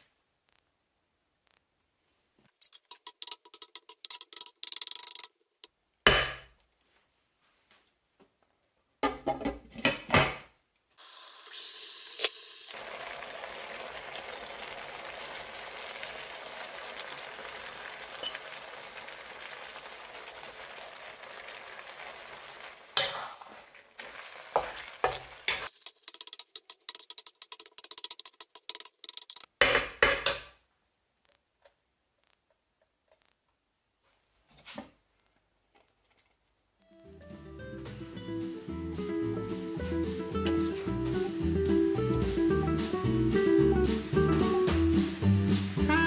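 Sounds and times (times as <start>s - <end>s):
stir-fry sizzling in a pan: 11.0s - 27.4s, 39.8s - 46.0s.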